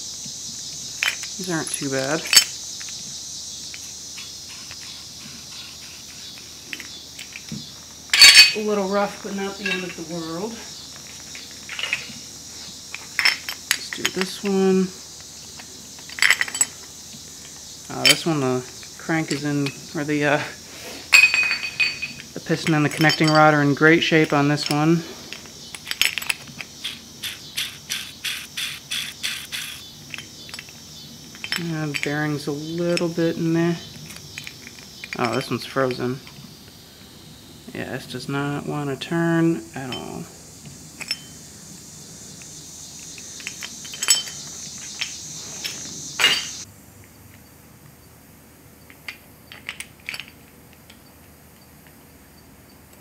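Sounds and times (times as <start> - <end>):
steady high hiss: 0.0 - 53.0
metal engine parts clinking: 0.9 - 3.1, 3.7 - 12.3, 12.9 - 14.8, 15.5 - 20.0, 21.1 - 36.4, 39.8 - 40.3, 41.0 - 41.4, 42.4 - 46.6, 48.9 - 51.1.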